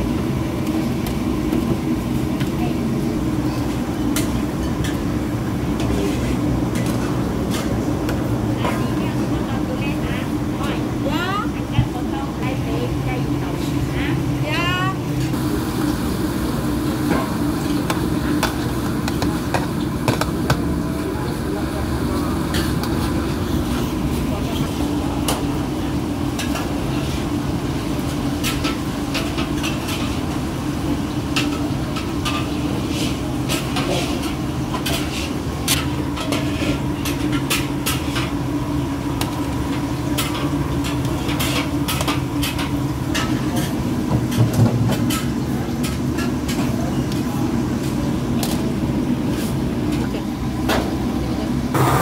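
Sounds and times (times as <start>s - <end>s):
low kitchen rumble: 0.0s - 52.0s.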